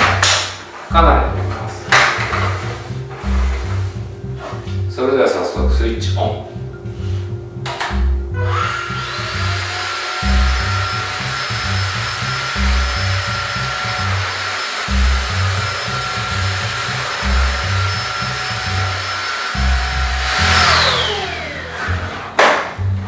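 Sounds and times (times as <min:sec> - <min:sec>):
vacuum cleaner whine: 0:08.4 - 0:22.4
vacuum motor winding down: 0:08.4 - 0:22.4.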